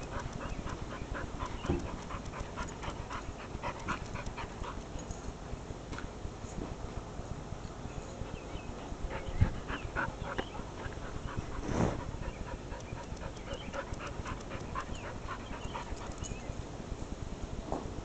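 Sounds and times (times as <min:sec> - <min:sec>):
dog panting: 0:00.0 - 0:05.2, 0:08.2 - 0:16.5.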